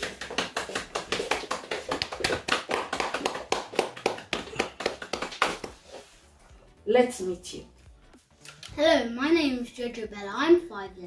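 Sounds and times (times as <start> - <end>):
hands clapping: 0.0 - 6.1.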